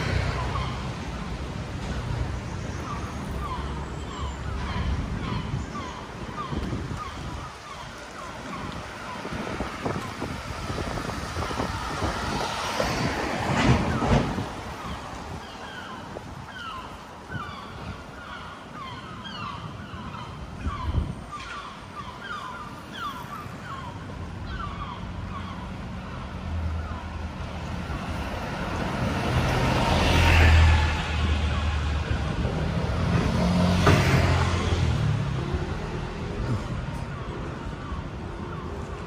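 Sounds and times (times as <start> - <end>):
vehicles passing by: 0.0 - 39.0
bird calling: 2.5 - 9.4, 13.8 - 27.1.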